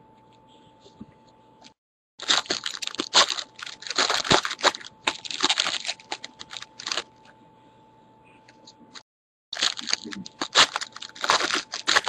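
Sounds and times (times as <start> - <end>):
wrapper crinkling and tearing: 2.2 - 7.1, 9.6 - 12.0.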